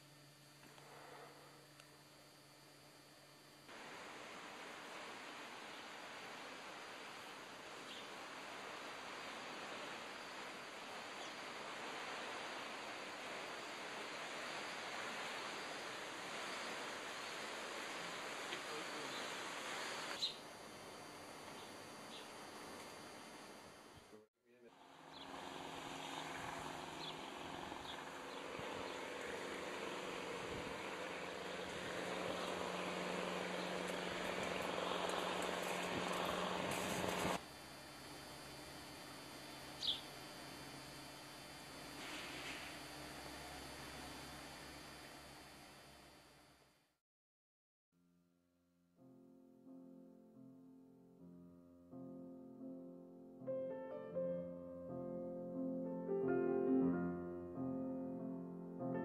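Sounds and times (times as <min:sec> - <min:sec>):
faint outdoor hiss: 0:00.0 - 0:46.7.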